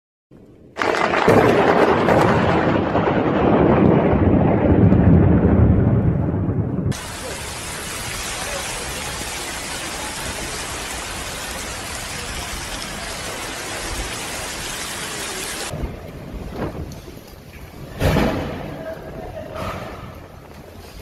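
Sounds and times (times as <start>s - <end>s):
floodwater rushing down street: 6.9s - 19.5s.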